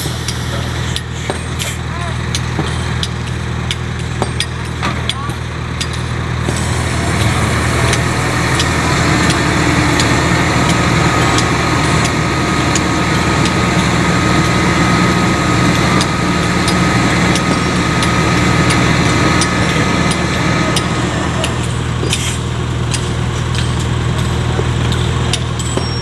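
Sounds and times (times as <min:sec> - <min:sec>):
excavator diesel engine running: 0:00.0 - 0:26.0
steady high whine: 0:06.4 - 0:26.0.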